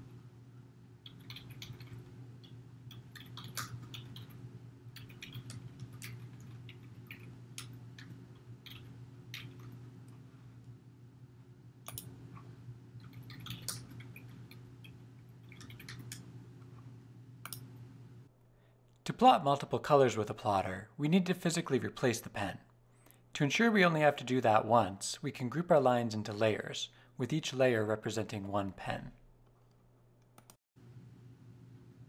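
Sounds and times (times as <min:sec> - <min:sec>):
steady low hum: 0:00.0 - 0:32.0
typing on computer keyboard: 0:01.0 - 0:04.4, 0:05.0 - 0:09.8, 0:13.0 - 0:14.6, 0:15.4 - 0:16.2.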